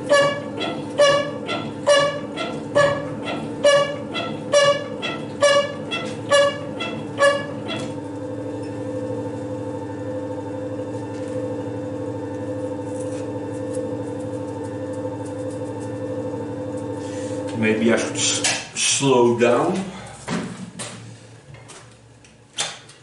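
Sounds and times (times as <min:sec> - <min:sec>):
metal shaper screeching chatter: 0:00.0 - 0:08.0
machine steady hum: 0:00.0 - 0:22.6.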